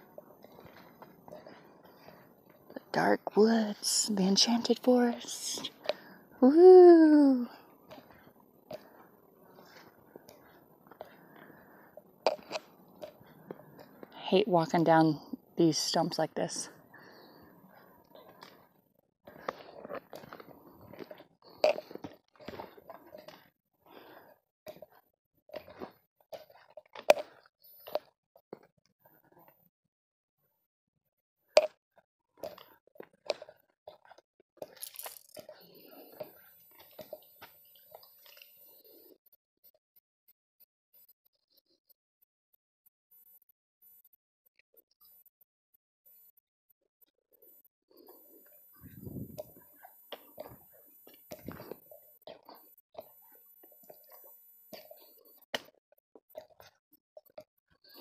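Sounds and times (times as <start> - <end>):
footsteps on dirt trail: 34.8 - 35.4.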